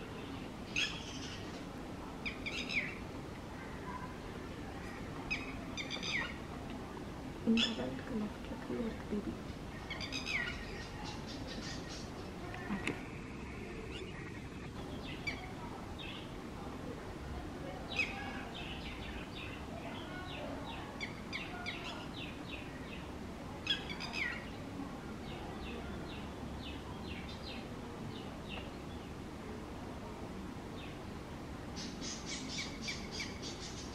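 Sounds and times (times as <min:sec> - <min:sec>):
lapwing alarm calls: 0:05.3 - 0:06.4, 0:07.5 - 0:07.9.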